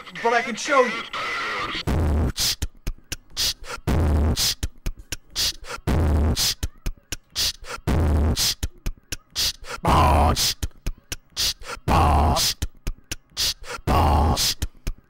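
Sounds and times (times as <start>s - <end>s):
hissing hi-hat strokes: 2.2s - 10.8s, 11.4s - 11.8s.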